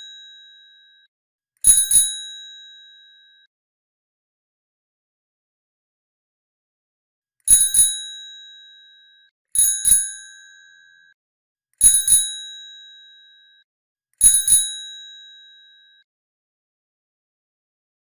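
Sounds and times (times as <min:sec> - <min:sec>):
bicycle bell double ring: 0:00.0 - 0:01.1, 0:07.5 - 0:11.1.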